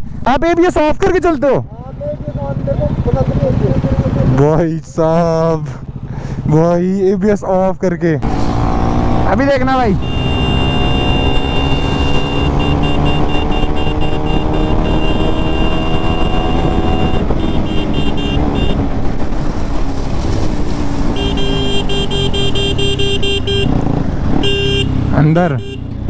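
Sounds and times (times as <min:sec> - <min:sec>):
motorcycle engine running: 0:01.6 - 0:07.0, 0:08.3 - 0:26.0
rapid high-pitched beeping: 0:10.0 - 0:18.8.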